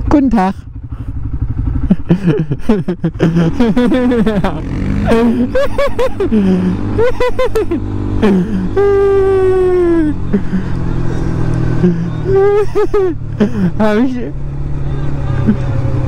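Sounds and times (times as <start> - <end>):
quad bike engine rumbling: 0.0 - 16.0
rider's voice: 13.5 - 15.7.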